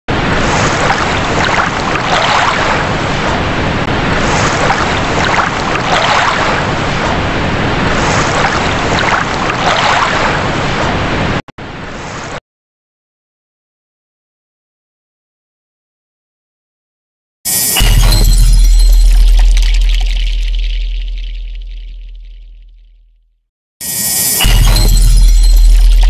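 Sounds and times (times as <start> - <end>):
waves breaking on rocky shore: 0.1 - 11.4.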